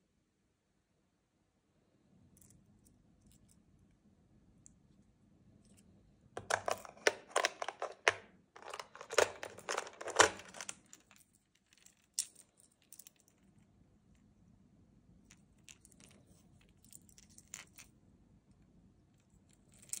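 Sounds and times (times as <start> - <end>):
plastic lures clattering in tackle box: 6.4 - 11.1.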